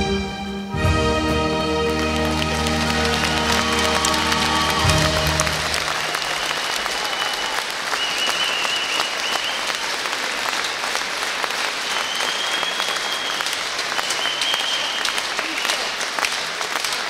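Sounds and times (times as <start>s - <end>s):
waltz music: 0.0s - 6.3s
audience applauding: 1.4s - 17.0s.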